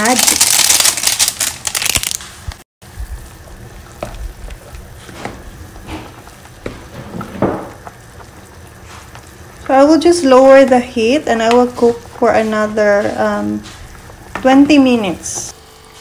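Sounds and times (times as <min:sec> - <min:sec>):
granules shaken from paper sachet: 0:00.0 - 0:02.4
soup bubbling: 0:02.8 - 0:15.6.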